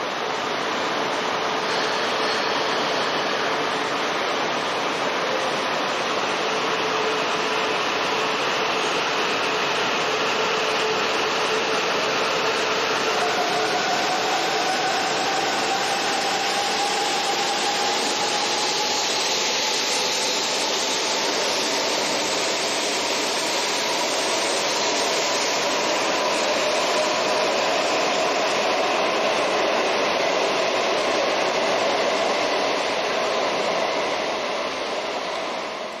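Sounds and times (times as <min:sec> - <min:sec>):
rushing train noise: 0:00.0 - 0:36.0.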